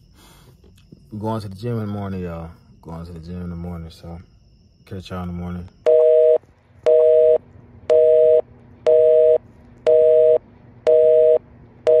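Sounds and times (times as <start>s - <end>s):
telephone busy signal beeps: 5.9s - 12.0s.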